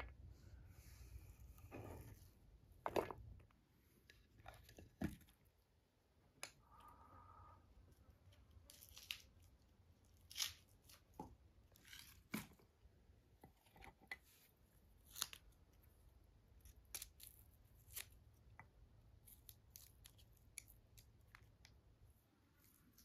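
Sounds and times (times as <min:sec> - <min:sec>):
garlic skin peeling and tearing: 0:08.6 - 0:11.1, 0:15.0 - 0:15.7, 0:16.6 - 0:18.4, 0:19.2 - 0:21.7.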